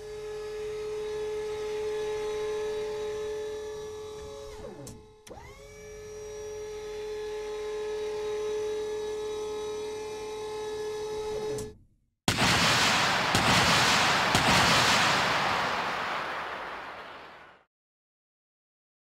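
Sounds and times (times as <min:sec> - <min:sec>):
electric motor whine of turret: 0:00.0 - 0:11.7.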